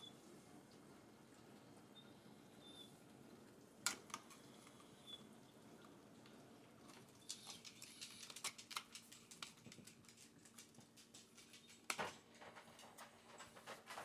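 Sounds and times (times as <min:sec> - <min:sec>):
faint steady hum: 0:00.0 - 0:14.0
small clicks and ticks: 0:06.2 - 0:14.0.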